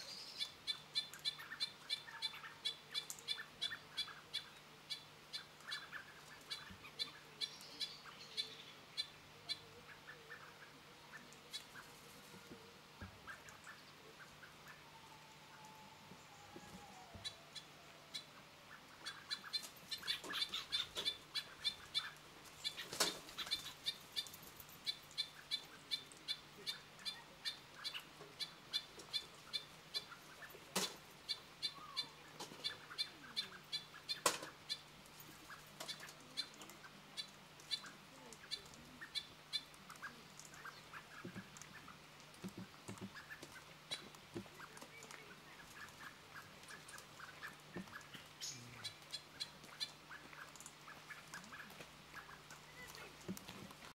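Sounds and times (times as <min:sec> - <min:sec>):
faint bird calls: 0:00.0 - 0:53.8.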